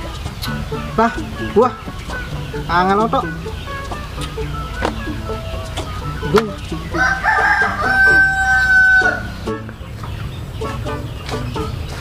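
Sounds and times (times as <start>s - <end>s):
rooster crowing: 6.8s - 9.5s.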